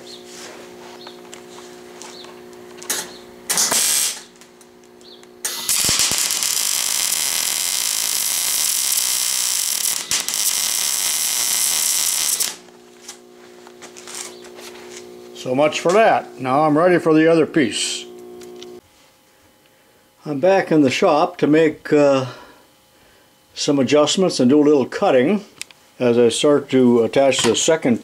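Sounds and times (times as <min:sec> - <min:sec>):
welder arc crackling: 0:00.0 - 0:18.8.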